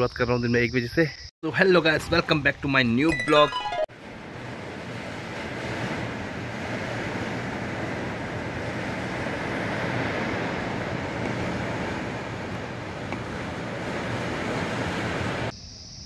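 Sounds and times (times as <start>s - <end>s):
wind rushing through trees: 3.9s - 15.6s
wind buffeting on microphone: 4.0s - 15.5s.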